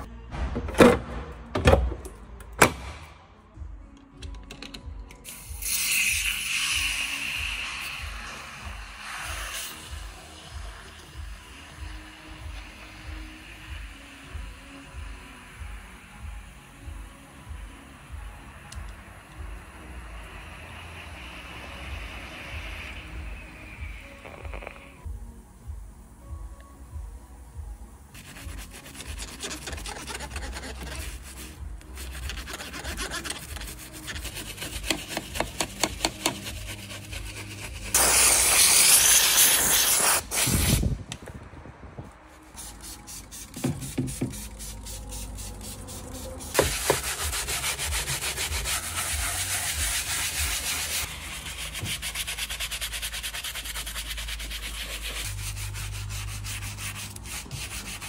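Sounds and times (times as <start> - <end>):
loud hiss: 37.9 - 41.0.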